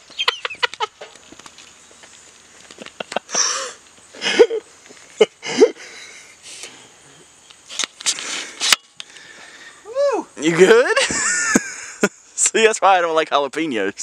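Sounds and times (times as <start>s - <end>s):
man breathing hard through mouth: 3.3s - 4.4s, 8.1s - 9.9s.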